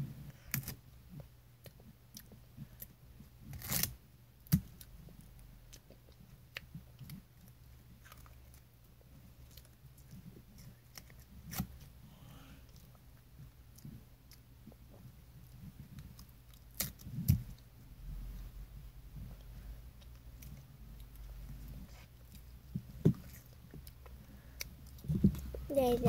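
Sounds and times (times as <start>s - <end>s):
low steady hum: 0.0s - 26.0s
paper candy tearing and chewing: 15.6s - 17.6s.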